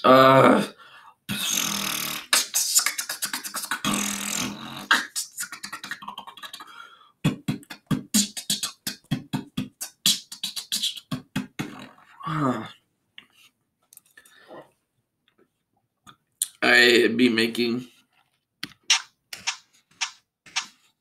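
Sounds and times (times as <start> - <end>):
person beatboxing: 1.3 - 12.0.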